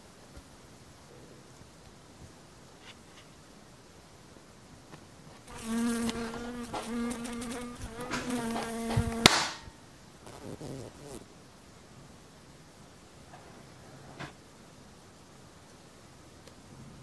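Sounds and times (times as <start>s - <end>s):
housefly buzzing: 5.5s - 9.6s, 10.2s - 11.3s
sharp hand slap: 8.1s - 9.7s.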